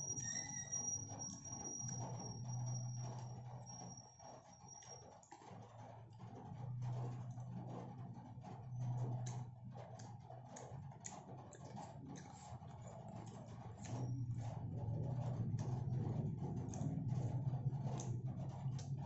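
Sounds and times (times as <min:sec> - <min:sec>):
low hum: 0:11.0 - 0:19.0.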